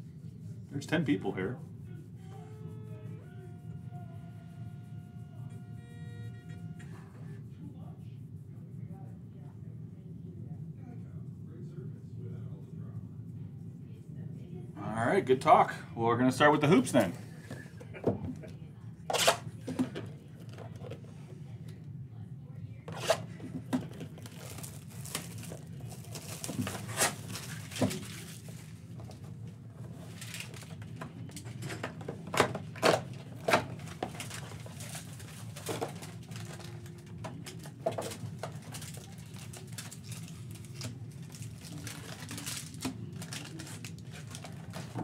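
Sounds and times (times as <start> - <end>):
foil packs rustling: 24.2 - 28.7, 33.5 - 45.0.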